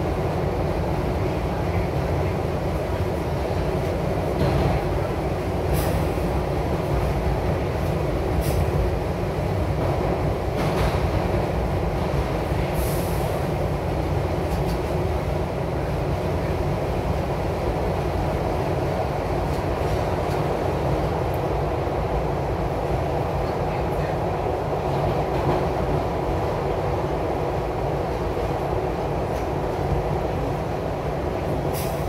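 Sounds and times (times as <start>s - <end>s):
subway train rumbling: 0.0s - 32.0s
brief high hiss: 31.7s - 32.0s.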